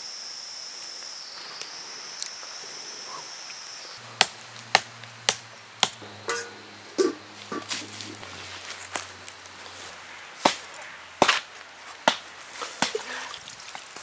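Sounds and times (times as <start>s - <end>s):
sharp chopping strokes: 10.4s - 13.0s.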